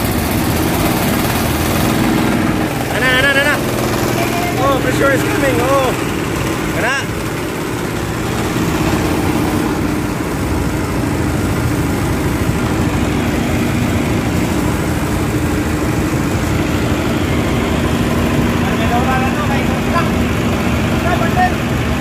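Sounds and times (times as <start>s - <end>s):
diesel engine chugging: 0.0s - 22.0s.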